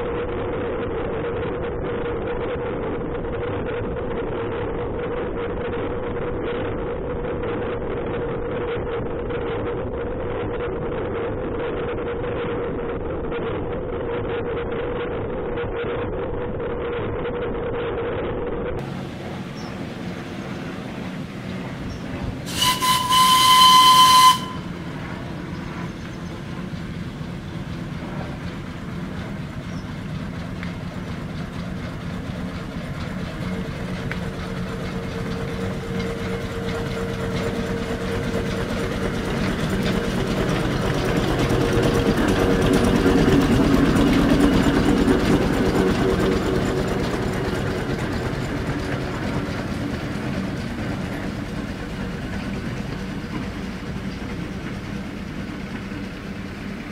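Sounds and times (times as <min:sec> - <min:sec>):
steam traction engine running: 0:18.8 - 0:56.9
steam whistle blast: 0:22.5 - 0:24.8.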